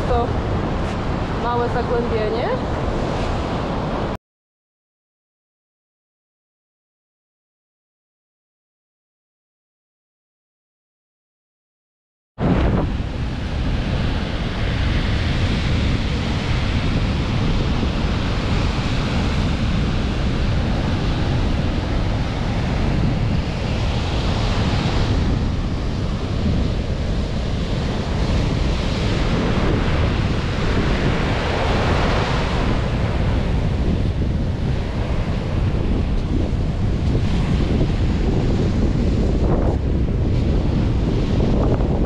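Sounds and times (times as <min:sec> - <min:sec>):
wind buffeting microphone: 0:00.0 - 0:04.2, 0:12.4 - 0:42.0
surf breaking on shore: 0:12.4 - 0:42.0.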